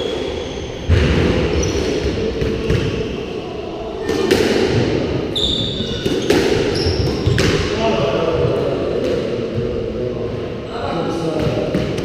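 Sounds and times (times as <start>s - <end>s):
shoe squeaking on wooden floor: 5.3s - 7.4s
squash ball knocks off racket and walls: 6.0s - 7.7s.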